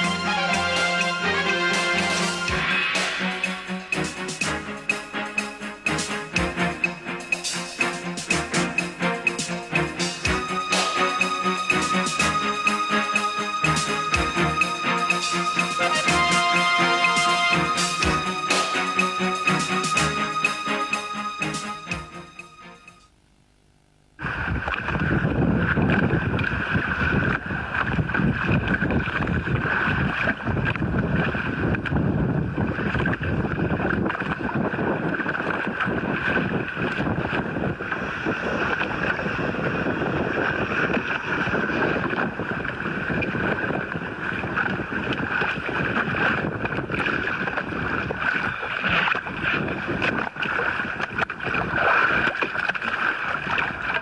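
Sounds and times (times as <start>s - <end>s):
water splashing against boat: 24.2s - 54.0s
wind buffeting microphone: 24.2s - 54.0s.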